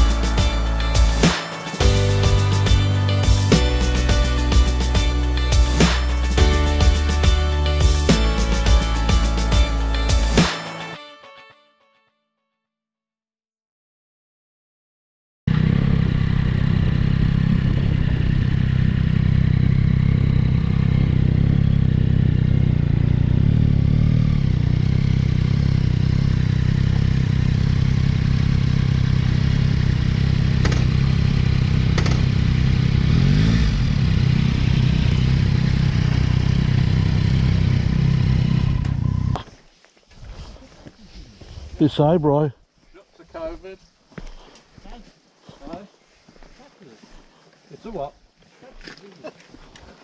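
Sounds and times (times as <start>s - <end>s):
motorcycle engine idling: 15.5s - 39.4s.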